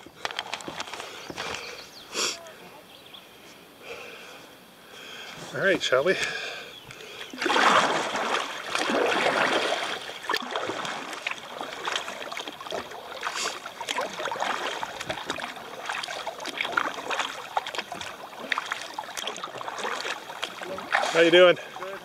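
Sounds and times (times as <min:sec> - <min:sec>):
paddle blades splashing: 0:00.0 - 0:22.0
water dripping off paddle: 0:06.2 - 0:22.0.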